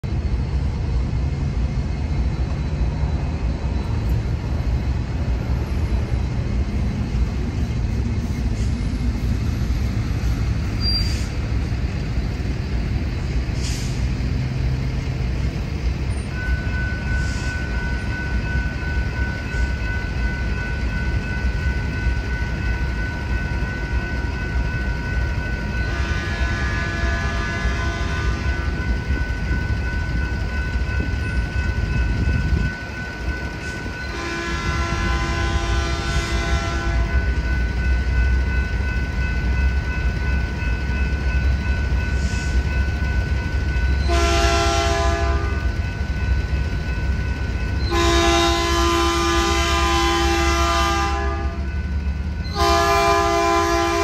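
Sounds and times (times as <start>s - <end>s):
train rumbling: 0.0s - 54.0s
crossing bell ringing tones: 14.2s - 54.0s.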